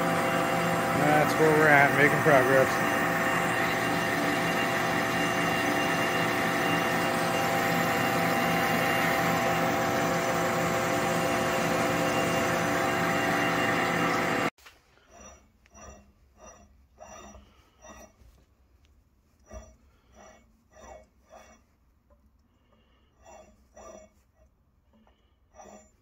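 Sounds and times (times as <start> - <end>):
lathe running: 0.0 - 18.2.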